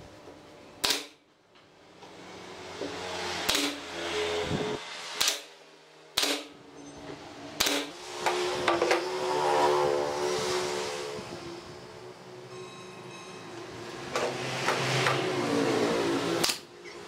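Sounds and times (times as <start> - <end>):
nail gun firing: 0.8 - 1.2, 3.4 - 3.8, 5.2 - 5.5, 6.1 - 6.6, 7.6 - 8.4.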